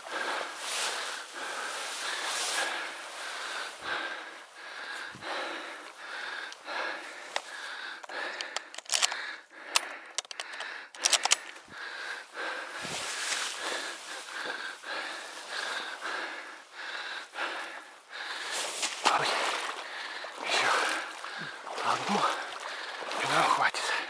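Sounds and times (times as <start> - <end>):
sharp clicks and crackles: 7.3 - 11.6
wading steps through mud: 17.3 - 24.0.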